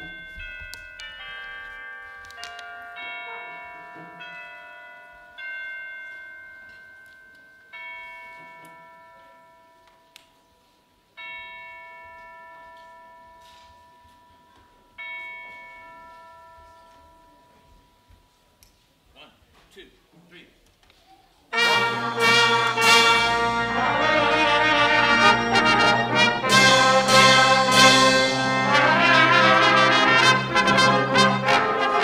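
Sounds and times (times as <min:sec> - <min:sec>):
bell-like chimes ringing: 0:00.0 - 0:09.8, 0:21.7 - 0:29.4.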